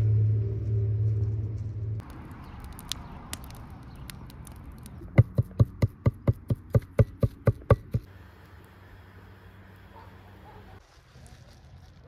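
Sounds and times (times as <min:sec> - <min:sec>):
wood fire crackling: 0:02.0 - 0:05.3, 0:08.0 - 0:09.9
cleaver chopping on wooden board: 0:05.1 - 0:08.1.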